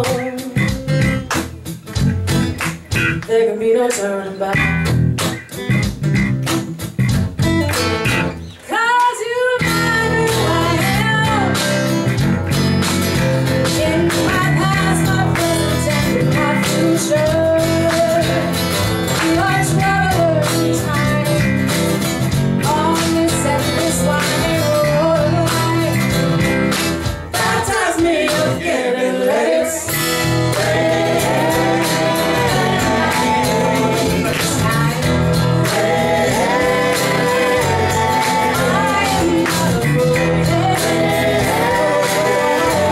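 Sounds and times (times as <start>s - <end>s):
person singing: 0.0s - 0.7s, 30.6s - 42.9s
soul band playing: 0.0s - 8.8s, 9.4s - 42.9s.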